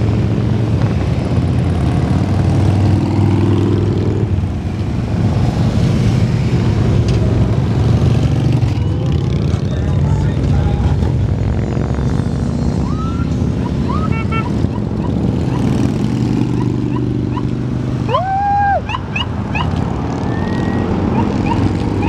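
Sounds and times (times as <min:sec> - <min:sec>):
motorcycles rumbling past: 0:00.0 - 0:22.0
police siren chirps and whoop: 0:12.8 - 0:14.2, 0:18.0 - 0:21.6.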